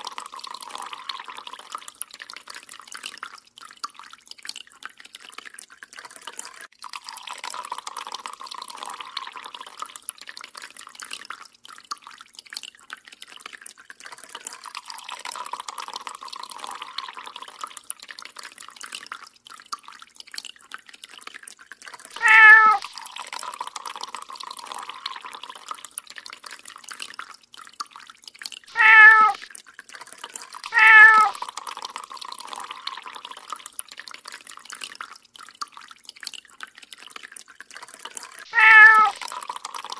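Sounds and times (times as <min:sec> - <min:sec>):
water dripping from a tap: 0:00.0 - 0:39.9
cat meowing: 0:22.2 - 0:22.8, 0:28.7 - 0:29.5, 0:30.7 - 0:31.4, 0:38.5 - 0:39.2.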